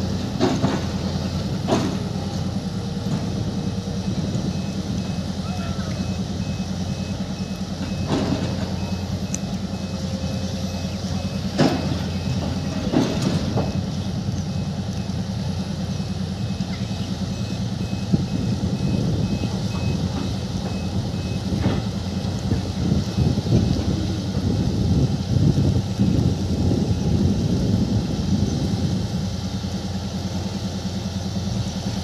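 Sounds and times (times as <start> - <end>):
excavator diesel engine running: 0.0 - 32.0
high-pitched alarm beeping: 3.6 - 13.9, 16.0 - 21.6.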